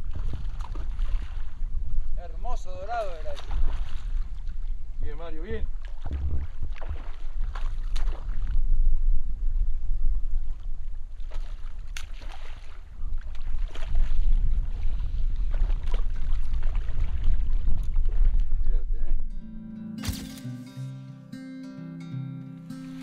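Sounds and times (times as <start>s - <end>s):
wind buffeting microphone: 0.0s - 12.1s, 12.7s - 19.3s.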